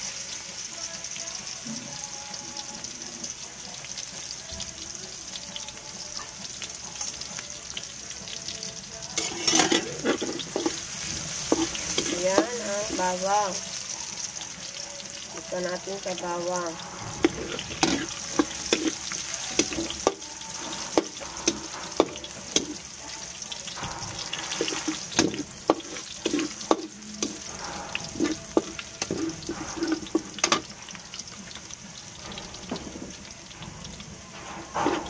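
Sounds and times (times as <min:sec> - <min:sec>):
garlic sizzling in oil: 0:00.0 - 0:35.0.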